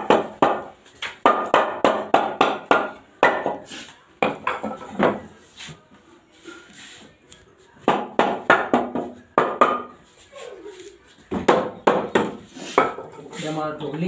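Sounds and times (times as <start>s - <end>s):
hammer striking wooden frame: 0.0s - 3.6s, 7.8s - 10.0s, 11.3s - 13.0s.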